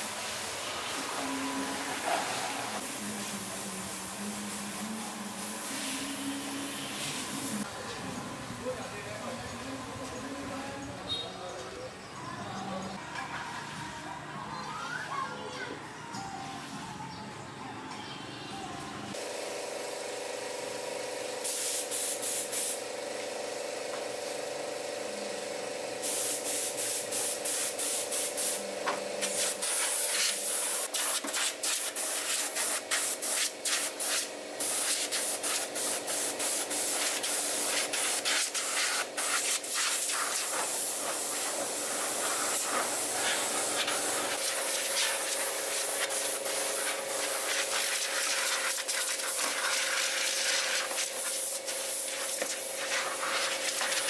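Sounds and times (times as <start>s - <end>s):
hissing spray bursts: 0.0s - 7.7s, 19.2s - 24.7s, 25.9s - 54.0s.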